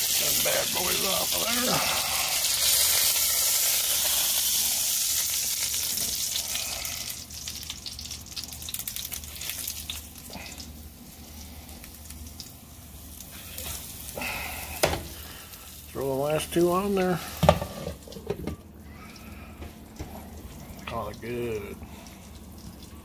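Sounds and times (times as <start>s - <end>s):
meat frying in hot oil: 0.0s - 23.0s
oil crackling and popping: 0.0s - 23.0s.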